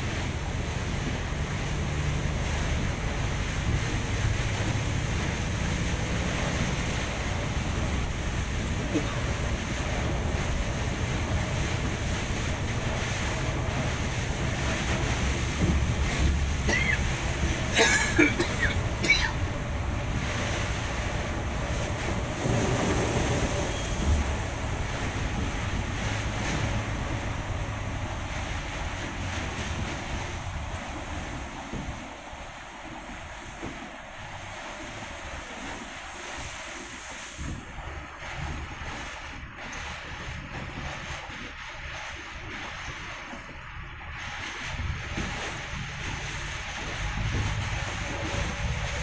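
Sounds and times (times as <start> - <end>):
coach engine and tyres droning: 0.0 - 36.2
heavy rain hissing: 0.0 - 38.4.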